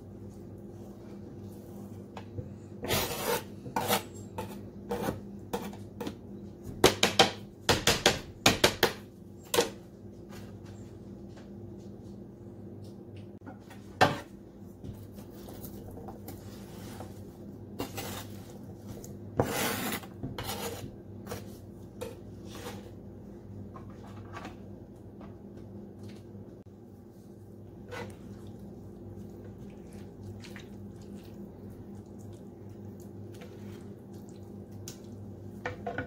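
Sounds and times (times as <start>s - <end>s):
steady low hum: 0.0s - 36.0s
knife scraping cutting board: 2.8s - 6.1s, 17.8s - 18.5s, 19.4s - 23.0s.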